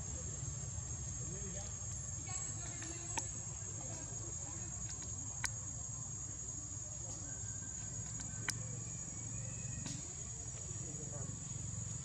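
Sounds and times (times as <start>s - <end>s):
high insect drone: 0.0s - 12.0s
sharp clicks: 8.0s - 8.6s.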